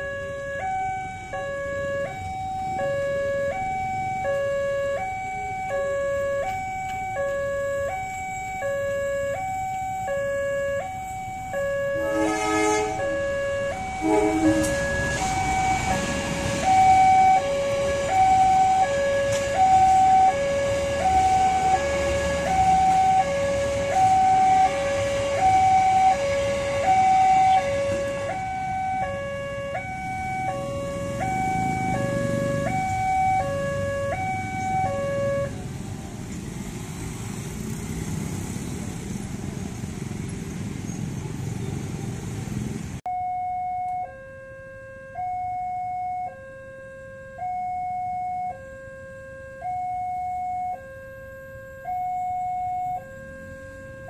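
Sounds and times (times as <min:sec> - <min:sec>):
level crossing two-tone alarm: 0:00.0 - 0:35.5, 0:43.1 - 0:54.0
train rumbling past on rails: 0:12.0 - 0:28.7, 0:29.9 - 0:33.0.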